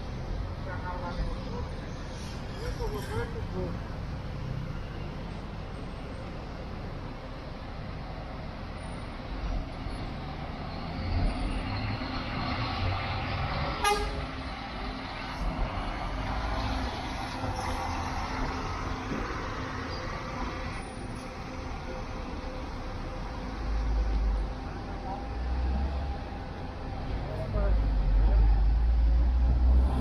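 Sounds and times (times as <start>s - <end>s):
bus diesel engine passing: 0.0s - 30.0s
horn toot: 13.8s - 14.2s.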